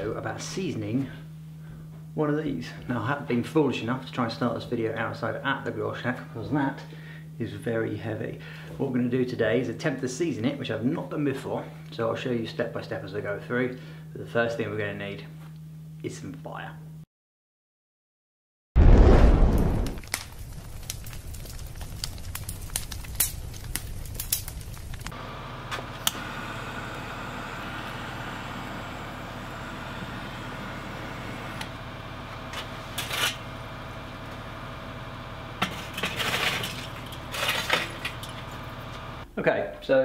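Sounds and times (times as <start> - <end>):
loud whoosh of fire: 18.8 - 25.1
fire crackling: 18.8 - 39.2
charcoal lumps clinking: 32.5 - 33.5, 35.6 - 39.0.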